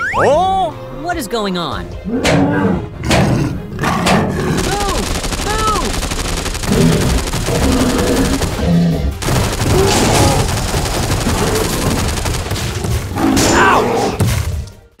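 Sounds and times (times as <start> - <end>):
machine-gun automatic fire: 4.5 - 13.4.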